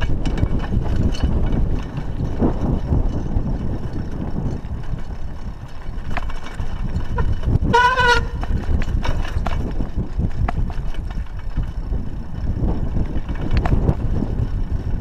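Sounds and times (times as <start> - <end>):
bicycle clicks and rattles: 0.0 - 15.0
wind buffeting microphone: 0.0 - 15.0
short horn-like tone: 7.2 - 8.4.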